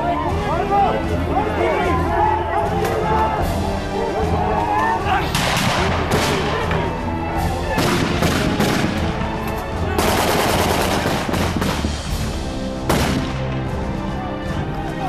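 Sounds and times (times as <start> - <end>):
background music: 0.0 - 15.0
gunfire bursts: 10.0 - 12.0.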